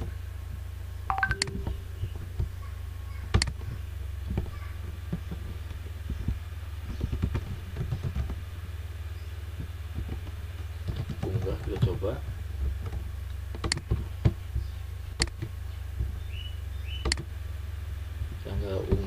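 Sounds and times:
steady low hum: 0.0 - 19.0
keyboard typing: 1.1 - 1.8.

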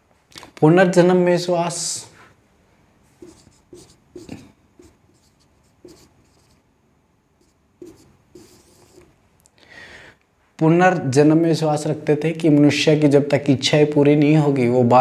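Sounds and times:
marker writing on whiteboard: 3.2 - 6.6, 7.4 - 9.1.

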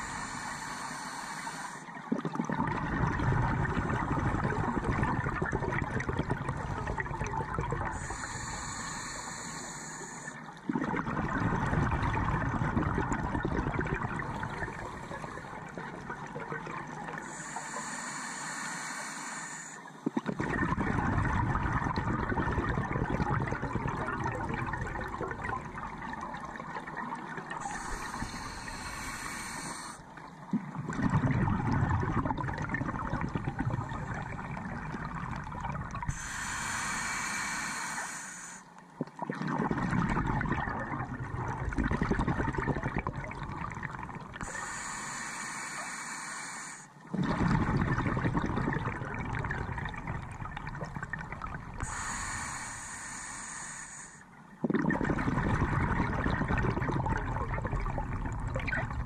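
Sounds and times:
regulator inhalation hiss: 0.0 - 1.9, 7.8 - 10.5, 17.2 - 20.0, 27.6 - 30.1, 36.1 - 38.8, 44.4 - 47.0, 51.8 - 54.3
exhaled bubbles gurgling: 0.0 - 59.0.

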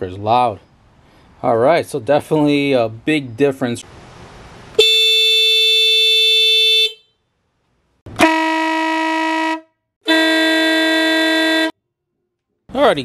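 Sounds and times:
motorcycle horn high note: 4.8 - 7.2, 8.1 - 11.8
two-tone horn blast: 4.8 - 7.2, 8.1 - 11.8
lower-pitched horn blast: 8.1 - 11.8.

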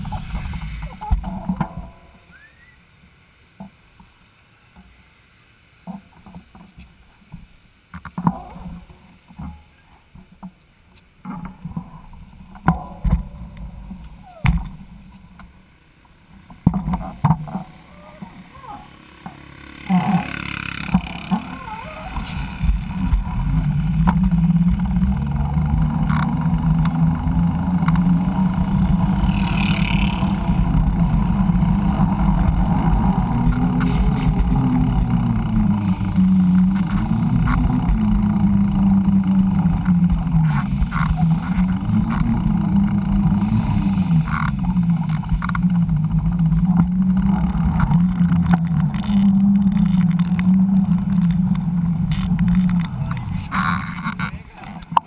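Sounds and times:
bike tyres humming on pavement: 0.0 - 5.0, 5.8 - 55.0
low rumble: 16.6 - 55.0.

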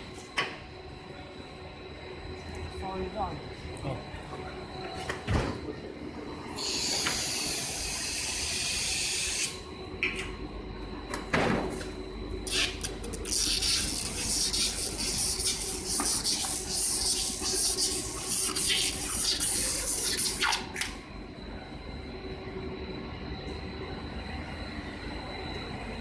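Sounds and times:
low machine hum: 0.0 - 26.0
crackling machine hiss: 6.5 - 9.7, 12.4 - 21.0.

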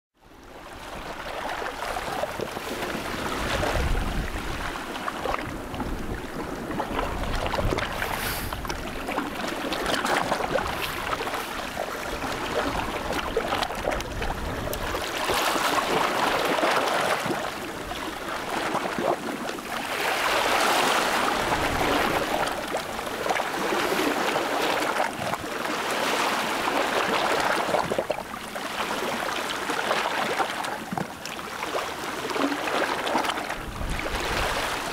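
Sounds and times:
waves washing and lapping: 0.2 - 34.9
wind buffeting microphone: 1.9 - 16.6, 33.6 - 34.9.

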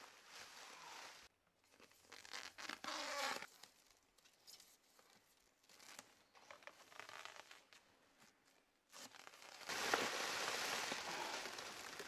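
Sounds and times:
plastic wrap crackling: 9.0 - 12.0.

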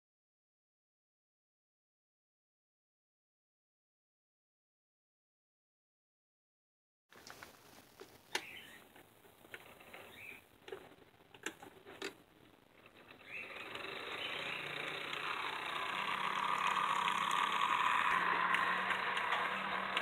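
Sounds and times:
model locomotive whirring: 12.8 - 20.0.

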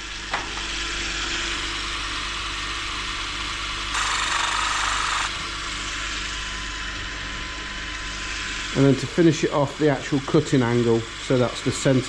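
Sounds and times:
grinding hiss: 3.9 - 5.3
motor humming: 3.9 - 7.2.

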